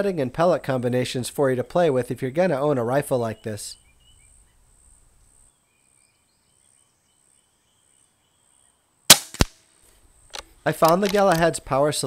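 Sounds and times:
faint bird chirps: 3.2s - 9.0s
insect drone: 4.0s - 9.1s.

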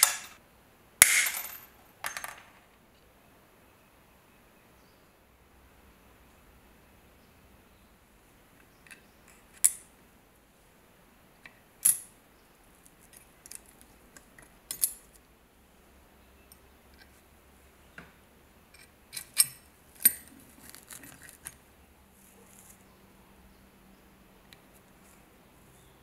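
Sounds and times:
metal parts clinking and clicking: 11.8s - 12.1s, 13.0s - 15.2s, 18.8s - 21.6s.

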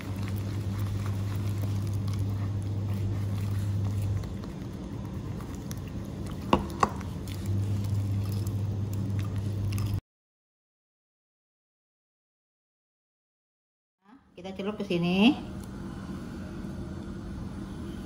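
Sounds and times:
fork stirring wet batter: 0.0s - 10.0s
steady low hum: 0.0s - 10.0s, 14.1s - 18.0s.

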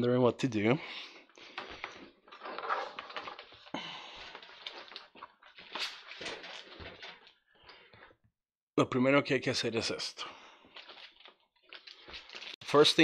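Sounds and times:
hook-and-loop straps ripping: 10.8s - 12.6s.

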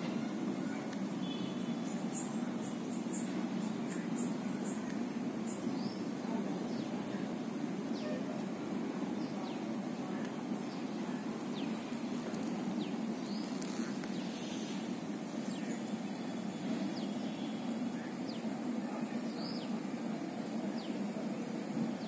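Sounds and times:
bird chirps: 0.6s - 6.1s.

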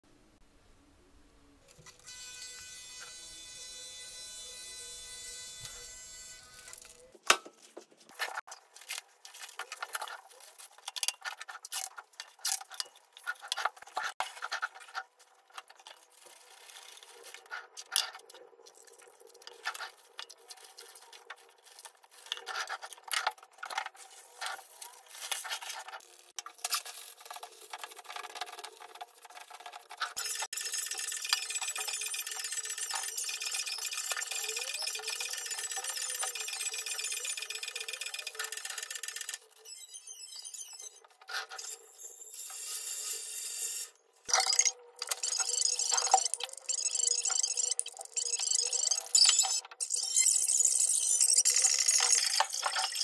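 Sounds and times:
plastic wrap and paper crinkling: 7.6s - 30.2s.

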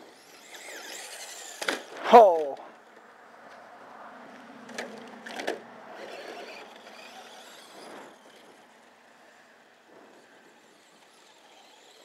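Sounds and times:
small electric motor whirring: 0.0s - 2.0s, 5.2s - 12.0s
tyres scrabbling on dirt: 0.1s - 3.0s, 4.7s - 8.8s.

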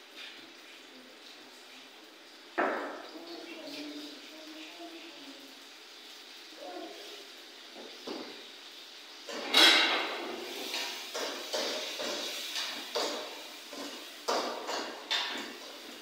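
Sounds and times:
spatula scraping frying pan: 9.3s - 16.0s.

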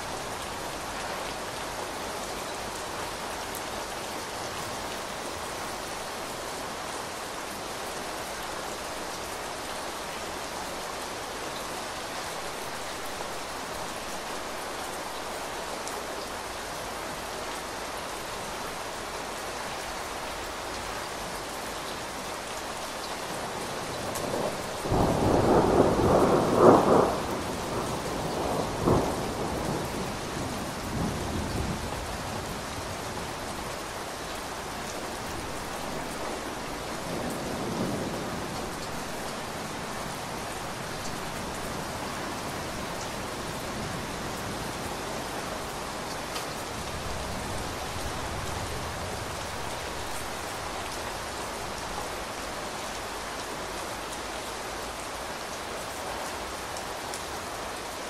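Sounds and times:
heavy rain on a window: 0.0s - 58.0s
thunder rumbling: 24.2s - 30.0s.

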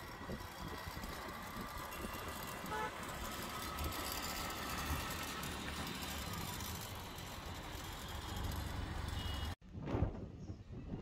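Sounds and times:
passing cars rumble: 0.0s - 9.6s
car horn toot: 2.7s - 3.0s, 9.1s - 9.6s.

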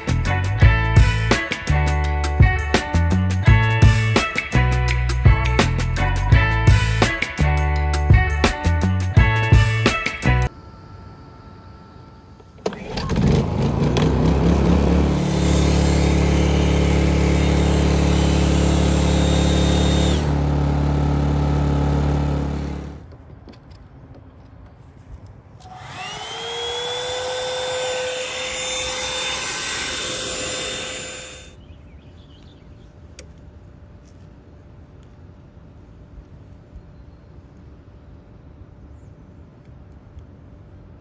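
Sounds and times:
hair dryer whine: 11.8s - 21.3s, 25.6s - 31.6s
generator engine running: 12.3s - 23.0s, 25.6s - 31.6s.

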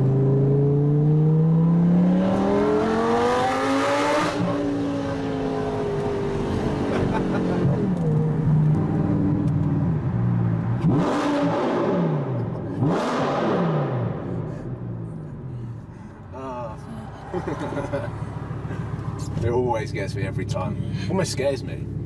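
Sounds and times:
car engine revving: 0.0s - 15.9s.

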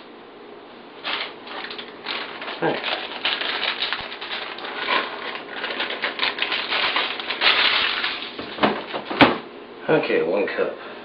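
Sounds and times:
walnuts rattling in a bag: 1.0s - 8.4s
bag rustling: 1.0s - 9.1s.

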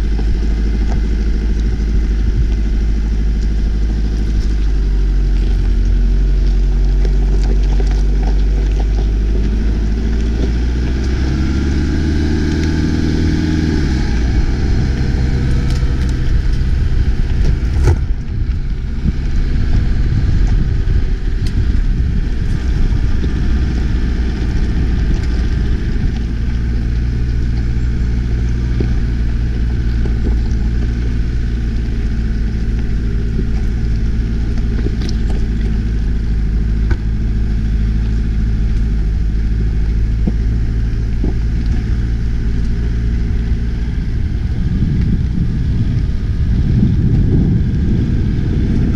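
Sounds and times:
pickup truck engine: 0.0s - 48.9s
tyres rumbling on gravel: 0.0s - 48.9s.

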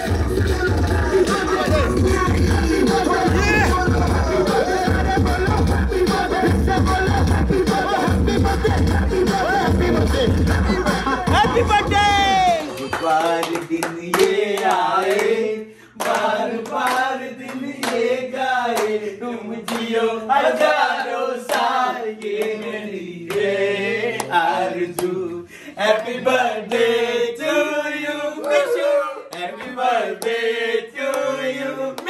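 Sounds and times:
group of people singing: 0.0s - 32.0s
hands clapping in time: 11.3s - 15.3s.

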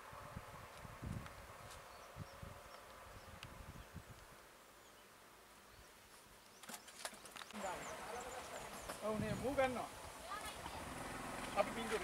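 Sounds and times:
distant bird chirps: 4.8s - 9.8s.

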